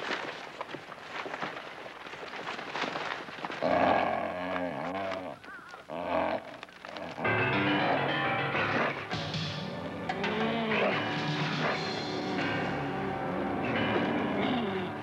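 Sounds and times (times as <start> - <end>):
rustling and footfalls: 0.0 - 7.5
dogs growling and barking: 5.9 - 15.0
music: 7.2 - 15.0.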